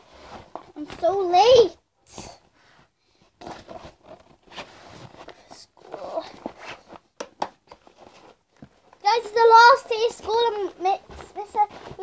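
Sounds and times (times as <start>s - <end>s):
folder rustling into fabric bag: 3.4s - 12.0s.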